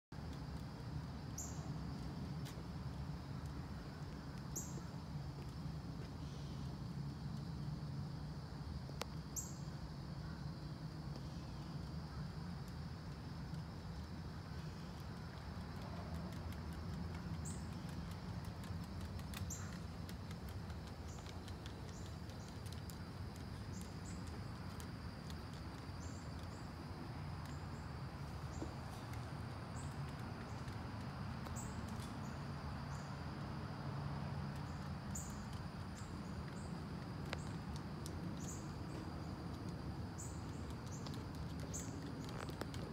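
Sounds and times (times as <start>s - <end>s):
dog claws clicking on wooden deck: 15.1s - 26.5s, 40.6s - 42.9s.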